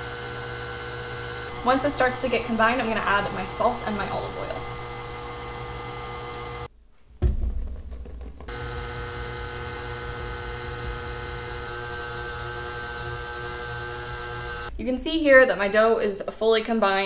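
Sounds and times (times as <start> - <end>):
stand mixer motor running: 0.0 - 6.7, 8.5 - 14.7
low thump: 7.2 - 8.5.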